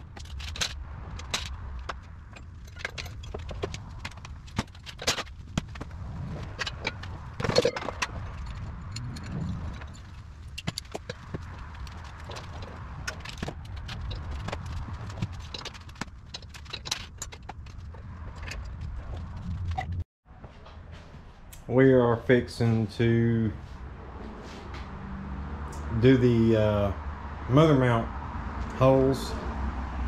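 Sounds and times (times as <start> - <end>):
metallic clatter: 0.0 - 20.0.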